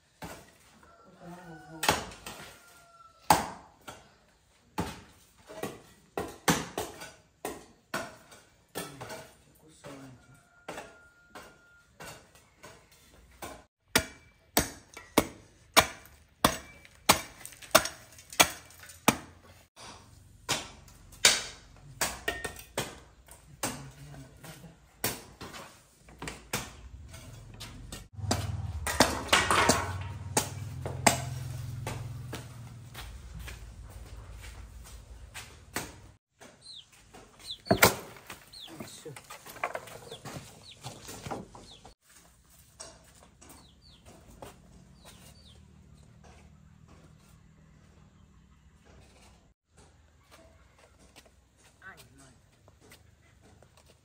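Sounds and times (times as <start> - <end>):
hand tool striking: 13.4 - 25.6, 26.2 - 39.0.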